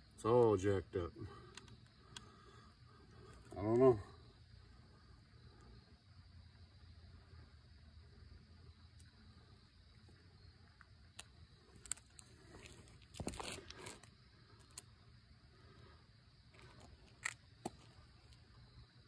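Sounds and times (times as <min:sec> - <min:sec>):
faint clicks: 0:01.4 - 0:02.4.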